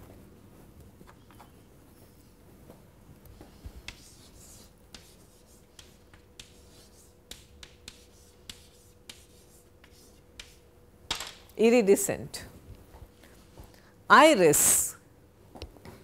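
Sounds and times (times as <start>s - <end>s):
chalk scratching on chalkboard: 3.4s - 10.6s
chalk tapping on chalkboard: 3.4s - 10.6s.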